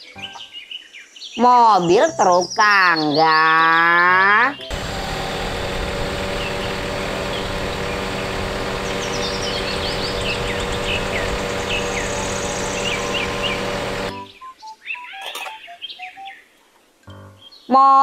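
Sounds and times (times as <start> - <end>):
birds chirping: 0.0 - 17.8
machine hum: 4.7 - 14.2.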